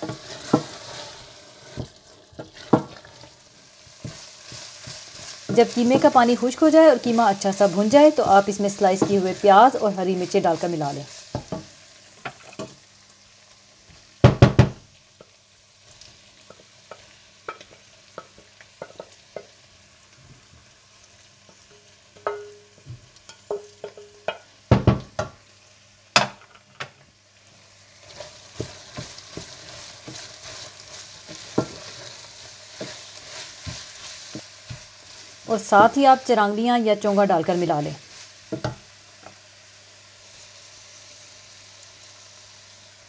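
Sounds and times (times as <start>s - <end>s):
mince sizzling in oil: 0.0s - 43.0s
wooden spatula knocking on pot: 22.2s - 25.4s, 38.5s - 38.8s.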